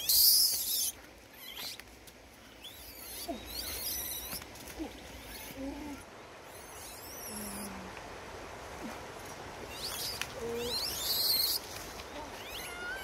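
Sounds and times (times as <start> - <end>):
young monkey squeaky calls: 0.0 - 1.8, 2.6 - 4.4, 9.7 - 11.6, 12.3 - 13.0.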